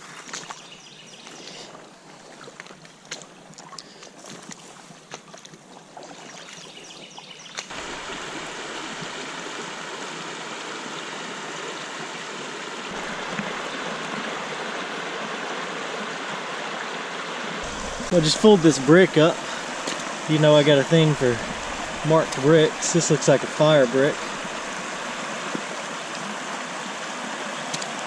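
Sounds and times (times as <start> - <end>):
water rushing over rocks: 7.7 - 28.0
splashing from wading: 12.9 - 14.6, 17.6 - 26.4.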